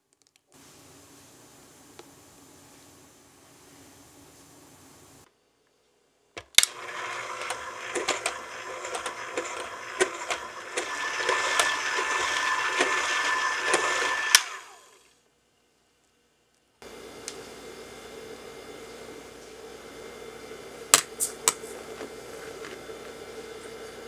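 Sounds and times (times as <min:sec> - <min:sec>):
electric hand mixer whining: 0:06.6 - 0:15.1, 0:16.8 - 0:24.0.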